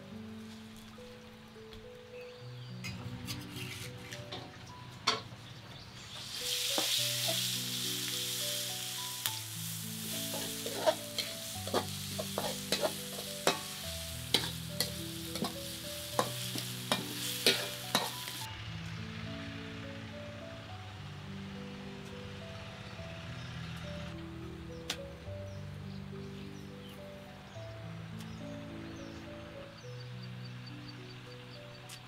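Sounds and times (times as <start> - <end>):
sauce sizzling in a wok: 6.1 - 18.5
metal spatula scraping pan: 10.3 - 13.7, 14.3 - 15.6, 16.2 - 18.2.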